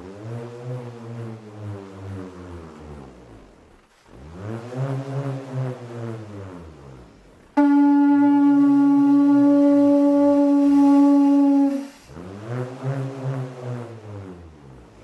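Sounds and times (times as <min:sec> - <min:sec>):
shell trumpet low note: 0:07.6 - 0:12.2.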